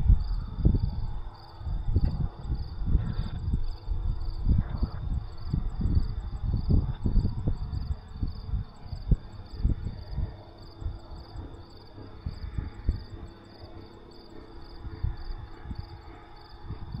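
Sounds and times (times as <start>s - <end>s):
crickets chirping: 0.0s - 17.0s
high insect trill: 0.0s - 17.0s
wind buffeting microphone: 0.0s - 17.0s.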